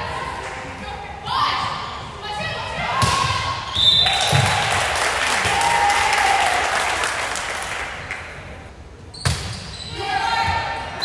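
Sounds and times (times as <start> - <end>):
spectators clapping and cheering: 4.0 - 8.5.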